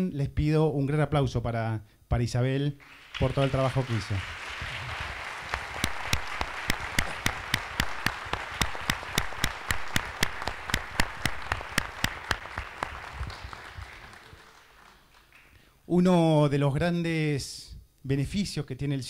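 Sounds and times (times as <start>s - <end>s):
audience applauding: 2.8s - 15.6s
close hand clapping: 2.8s - 15.7s.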